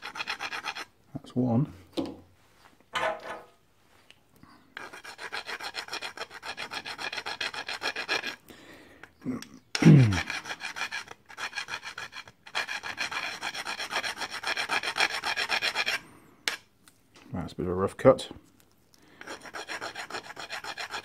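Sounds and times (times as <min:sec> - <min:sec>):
hand file rasping on metal: 0:00.0 - 0:00.9, 0:04.8 - 0:08.4, 0:10.1 - 0:16.6, 0:19.2 - 0:21.0.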